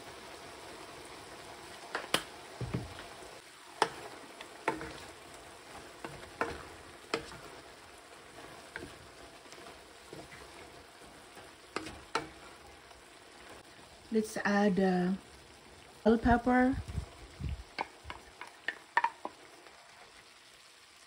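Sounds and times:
food sizzling in a frying pan: 0.0s - 21.0s
clicks and knocks of stirring: 3.8s - 5.2s, 6.0s - 7.6s, 8.4s - 12.7s, 17.7s - 19.4s.

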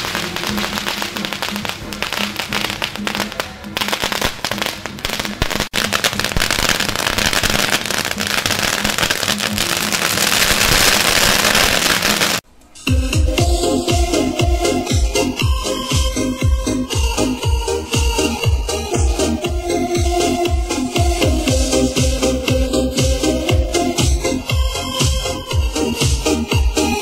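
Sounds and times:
firecrackers crackling: 0.0s - 12.4s.

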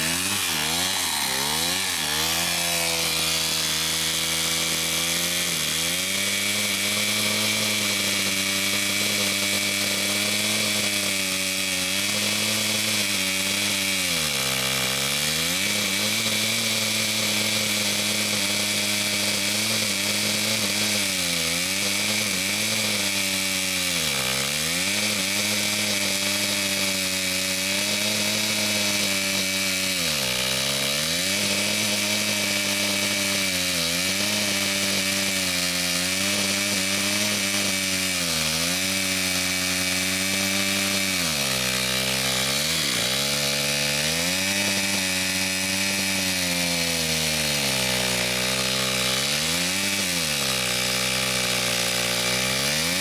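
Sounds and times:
chainsaw cutting through a log: 0.0s - 53.0s.

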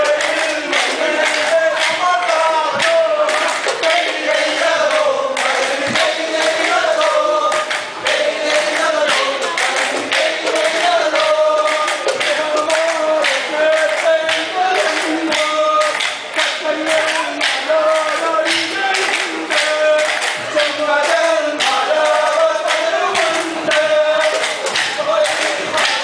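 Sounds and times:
men singing together: 0.0s - 26.0s
wooden sticks clacking: 9.0s - 26.0s.

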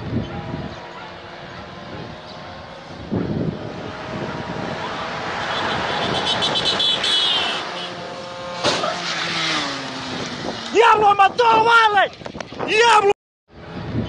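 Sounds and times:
vehicle driving past: 0.6s - 10.8s.

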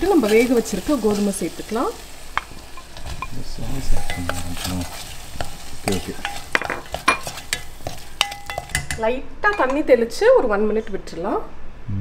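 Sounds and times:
vegetables sizzling in a pan: 0.0s - 9.8s
spatula scraping and knocking pan: 2.3s - 9.8s.

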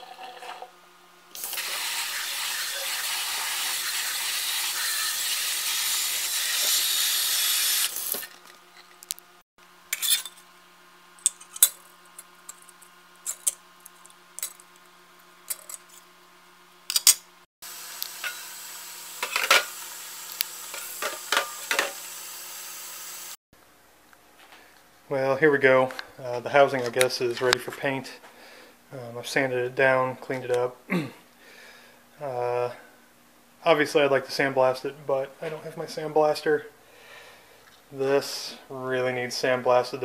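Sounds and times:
metal mesh screen on countertop: 0.0s - 0.7s, 9.9s - 10.5s, 11.2s - 16.2s, 16.9s - 17.3s, 18.0s - 22.2s.

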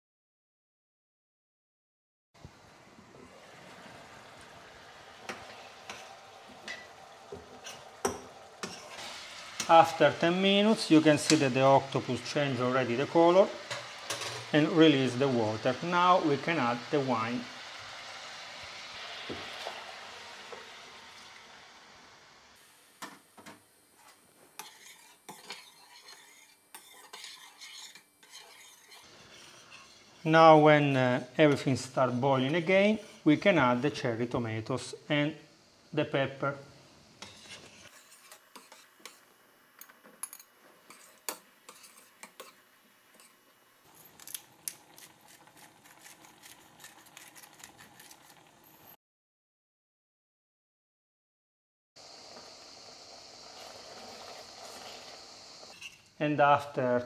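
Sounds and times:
wine sizzling in a hot pan: 2.4s - 49.0s, 52.0s - 57.0s
fork scraping a pan: 5.3s - 11.6s, 24.0s - 33.4s, 37.2s - 39.3s, 40.2s - 48.6s, 53.6s - 56.1s.

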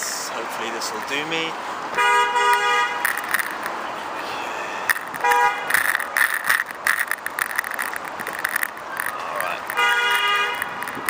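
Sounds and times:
vehicle horn toot: 2.0s - 3.1s, 5.2s - 5.7s, 9.7s - 10.8s
bicycle basket rattling: 3.0s - 3.8s, 4.9s - 11.0s.

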